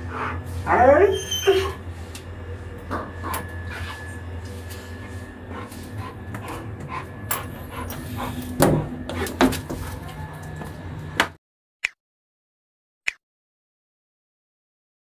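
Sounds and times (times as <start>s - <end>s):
low hum: 0.0s - 11.2s.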